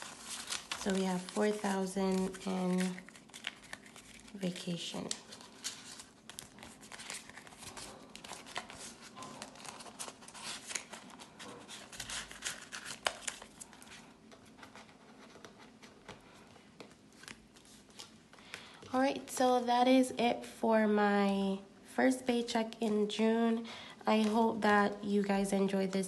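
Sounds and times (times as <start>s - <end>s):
plastic envelope and banknotes crinkling: 0.0s - 18.8s.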